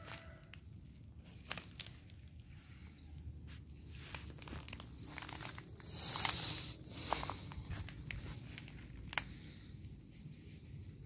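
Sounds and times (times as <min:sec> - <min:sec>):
footsteps crunching through dry leaves: 0:03.4 - 0:09.6.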